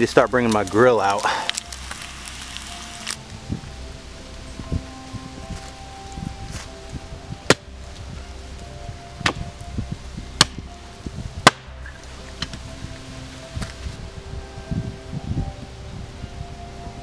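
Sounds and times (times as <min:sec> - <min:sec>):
chopping strikes on wood: 0:07.5 - 0:07.7, 0:09.2 - 0:09.4.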